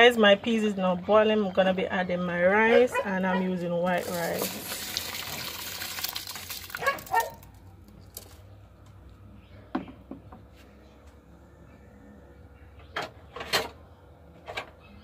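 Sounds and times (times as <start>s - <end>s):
pot boiling quietly: 3.9s - 7.5s
rice pouring into pot: 4.0s - 7.2s.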